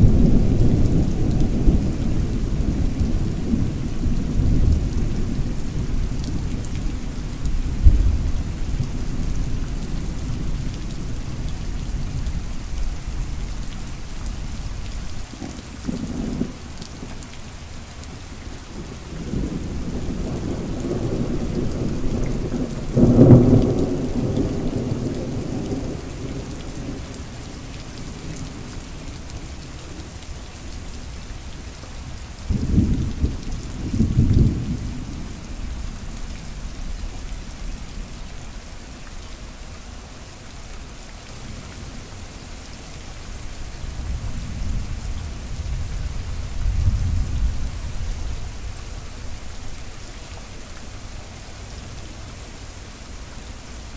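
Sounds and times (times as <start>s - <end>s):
rolling thunder: 0.0s - 12.6s, 18.8s - 27.3s, 32.5s - 38.2s, 43.9s - 49.5s
steady rain hissing: 0.0s - 53.9s.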